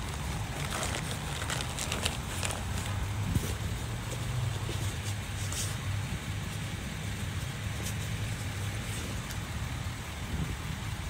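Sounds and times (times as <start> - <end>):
tools and bag fabric rustling: 0.0 - 5.8
vehicle engine idling: 0.0 - 11.0.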